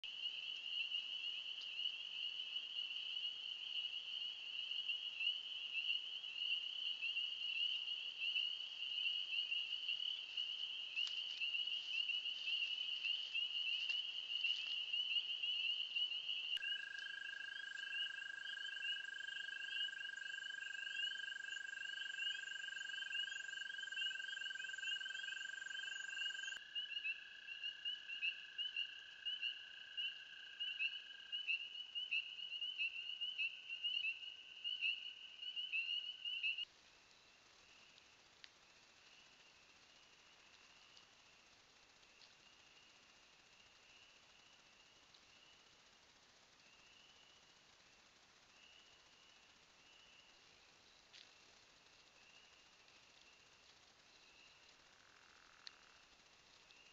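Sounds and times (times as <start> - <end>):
frogs calling: 0.0 - 36.7.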